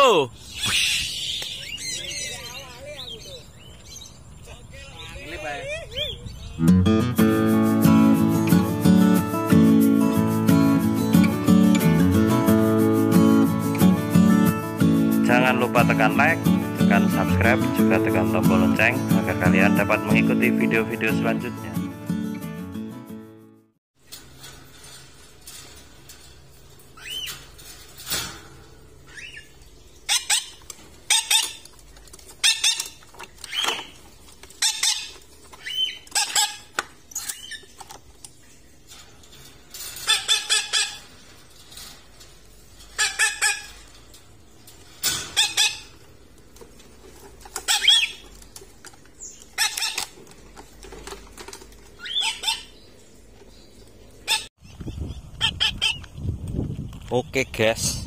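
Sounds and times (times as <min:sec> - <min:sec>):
parrots squawking: 0:00.4 - 0:04.1, 0:29.1 - 0:31.7, 0:32.4 - 0:34.0, 0:34.6 - 0:37.8, 0:40.0 - 0:41.2, 0:42.9 - 0:44.0, 0:45.2 - 0:46.0, 0:47.5 - 0:48.3, 0:49.5 - 0:50.2, 0:52.0 - 0:52.9, 0:54.2 - 0:54.5, 0:55.4 - 0:56.1.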